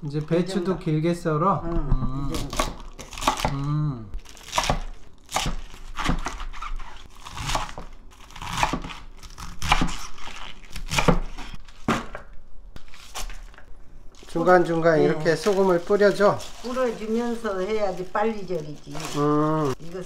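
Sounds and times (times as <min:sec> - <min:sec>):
knife cutting crisp cabbage: 0:02.3 - 0:03.6, 0:04.2 - 0:12.1.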